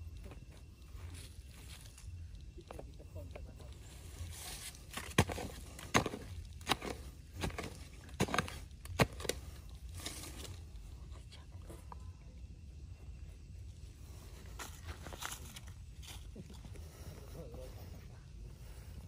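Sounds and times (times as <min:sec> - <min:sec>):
hand scraping loose earth: 0:04.0 - 0:10.8, 0:14.0 - 0:17.5
hoe chopping into dry soil: 0:04.9 - 0:10.4.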